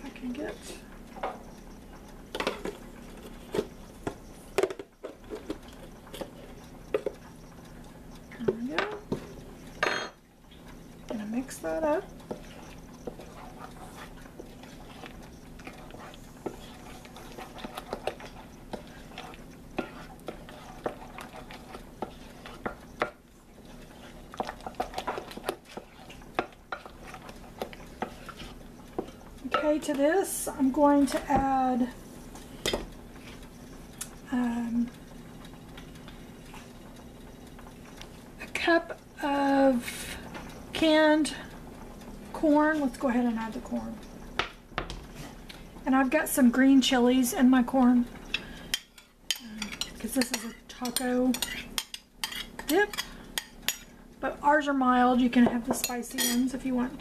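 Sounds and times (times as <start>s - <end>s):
low steady hum: 0.0s - 57.0s
utensil scraping mixing bowl: 11.1s - 31.5s
metal spoon clinking and scraping: 48.7s - 53.9s, 55.8s - 56.5s.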